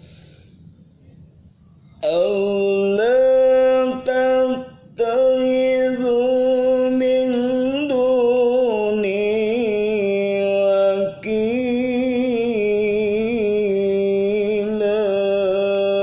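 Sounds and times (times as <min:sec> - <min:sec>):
man reciting in melodic chant: 0:02.0 - 0:16.0.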